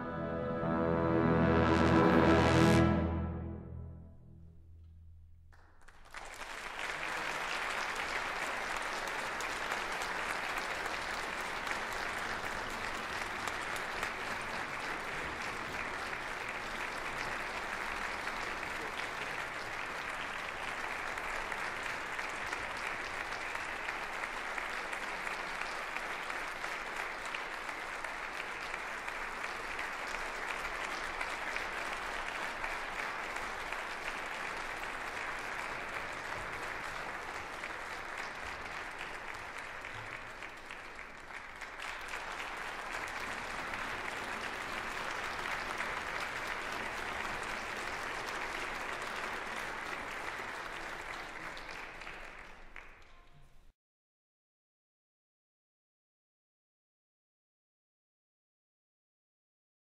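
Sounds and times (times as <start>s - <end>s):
audience applauding: 5.6s - 53.4s.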